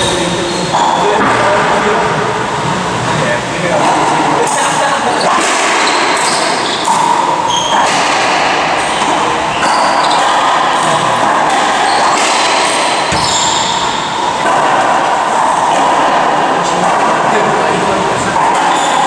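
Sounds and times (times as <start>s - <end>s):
sneaker squeaks on hardwood floor: 0.0s - 1.2s, 5.2s - 8.0s, 9.0s - 10.8s, 13.0s - 14.2s, 18.6s - 19.0s
ball hitting racquets and walls: 3.8s - 19.0s.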